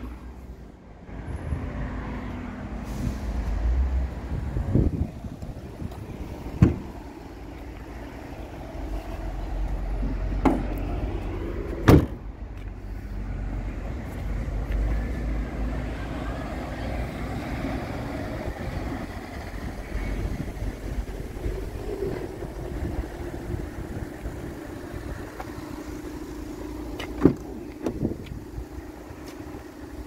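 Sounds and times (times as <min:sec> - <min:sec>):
steady low rumble: 0:02.6 - 0:16.2, 0:17.8 - 0:30.0
van doors banging shut: 0:06.5 - 0:06.9, 0:11.8 - 0:12.2, 0:27.2 - 0:28.1.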